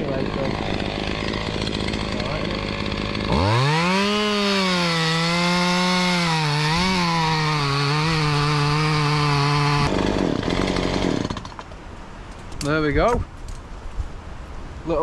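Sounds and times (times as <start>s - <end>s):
chainsaw cutting wood: 0.0s - 11.8s.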